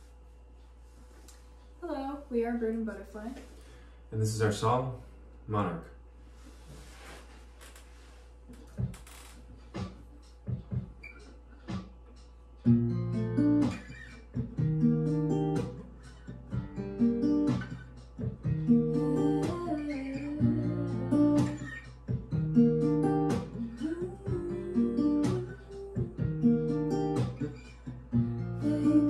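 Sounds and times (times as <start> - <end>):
acoustic guitar chords: 12.6 - 29.0.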